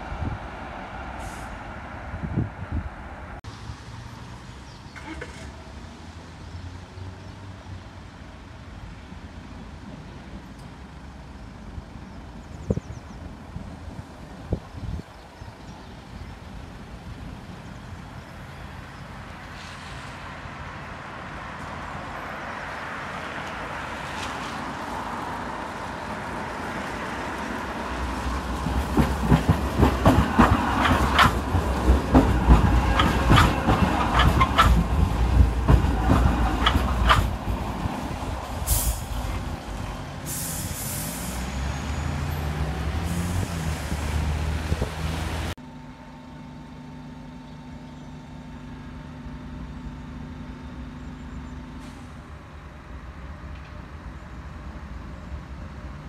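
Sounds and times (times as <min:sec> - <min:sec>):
tram passing with rumble: 0:00.0 - 0:56.0
tram motor hum: 0:08.8 - 0:40.3, 0:41.3 - 0:56.0
wheel clicks on track joints: 0:28.9 - 0:37.4
short hisses: 0:40.3 - 0:41.5.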